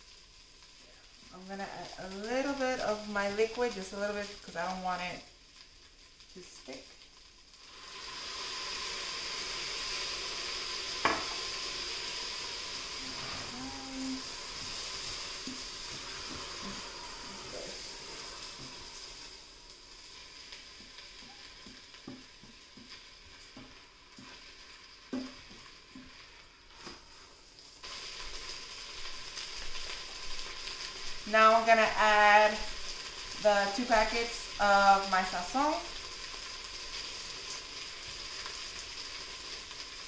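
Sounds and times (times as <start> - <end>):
broth sizzling in hot pot: 0.0 - 40.0.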